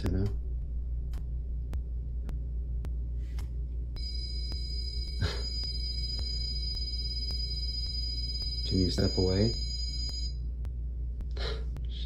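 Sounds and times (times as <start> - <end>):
high electronic alarm tone: 4.0 - 10.4.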